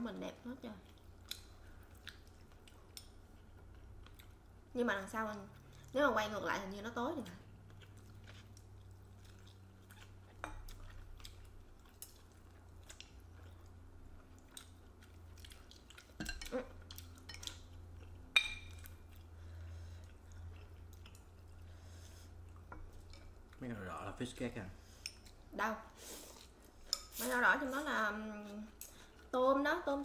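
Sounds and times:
low steady hum: 0:00.0 - 0:30.0
chopsticks clinking on bowls: 0:18.3 - 0:18.8.

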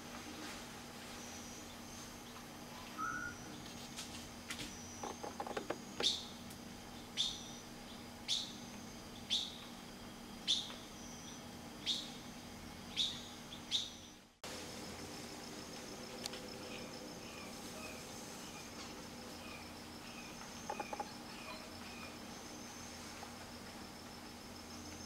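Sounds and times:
high insect drone: 0:00.0 - 0:25.0
bird chirping: 0:01.2 - 0:04.0, 0:04.7 - 0:09.7, 0:10.5 - 0:14.2, 0:16.5 - 0:23.1.

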